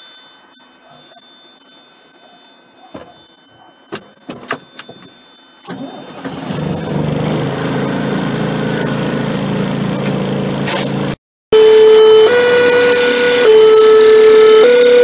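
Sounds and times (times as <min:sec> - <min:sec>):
diesel engine starting and idling: 0:05.6 - 0:12.2.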